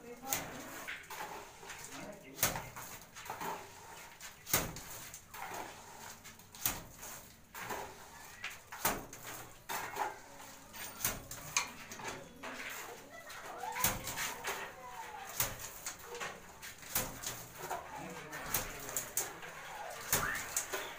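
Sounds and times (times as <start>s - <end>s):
mortar splatting against wall: 2.3s - 3.6s, 4.3s - 5.6s, 6.5s - 7.9s, 8.6s - 10.0s, 15.3s - 20.9s.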